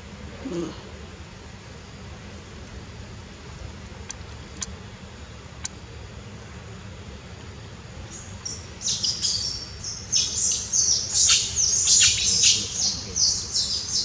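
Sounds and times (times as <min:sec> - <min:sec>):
low background rumble: 0:00.0 - 0:14.0
birds chirping: 0:07.9 - 0:14.0.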